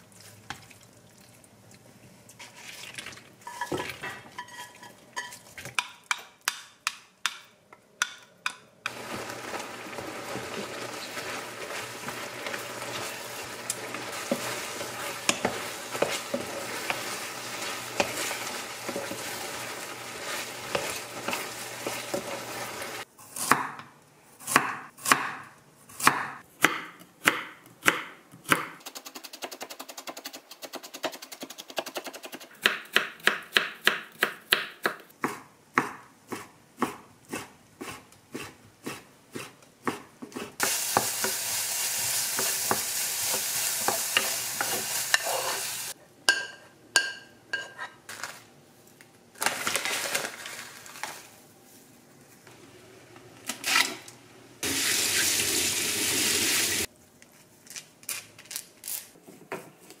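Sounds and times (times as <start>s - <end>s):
wooden spatula stirring: 1.7s - 7.0s, 8.4s - 23.0s, 42.4s - 46.4s
food sizzling in a frying pan: 8.9s - 23.1s, 40.6s - 46.0s, 54.6s - 56.9s
knife chopping on wooden board: 23.4s - 23.9s, 24.5s - 25.4s, 26.0s - 28.8s.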